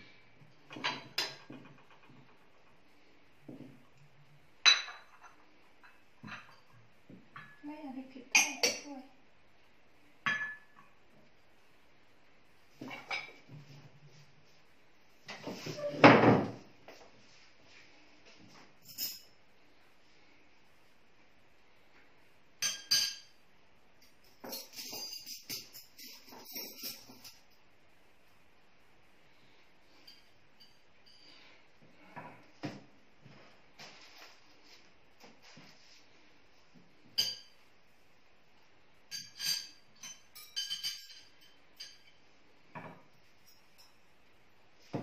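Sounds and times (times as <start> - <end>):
dishes and cutlery clinking: 0.6 - 2.7, 4.6 - 7.6, 8.3 - 9.0, 10.2 - 11.0, 12.8 - 13.5, 18.8 - 19.4, 22.6 - 23.4, 24.0 - 27.6, 29.9 - 32.8, 37.1 - 37.6, 39.1 - 42.2
cutlery and china clinking: 18.8 - 19.3, 22.6 - 23.4, 24.0 - 27.6, 37.2 - 37.6, 39.1 - 42.2.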